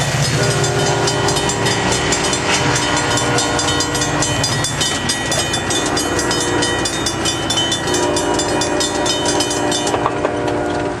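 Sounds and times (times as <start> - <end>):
crossing warning bell ringing: 0.0 - 11.0
steady low tones: 0.0 - 11.0
train passing: 0.0 - 11.0.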